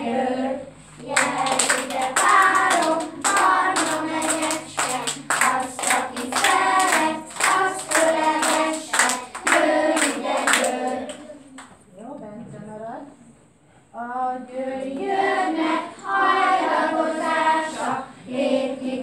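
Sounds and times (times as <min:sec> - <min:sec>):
children singing: 0:00.0 - 0:11.4, 0:14.1 - 0:19.0
hands clapping in time: 0:01.0 - 0:11.8.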